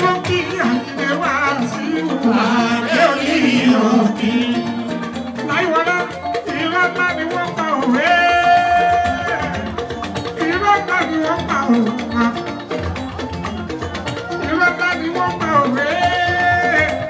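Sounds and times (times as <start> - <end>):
man singing into microphone: 0.0 - 4.8, 7.8 - 9.6
electric guitar: 0.0 - 17.0
live band playing: 0.0 - 17.0.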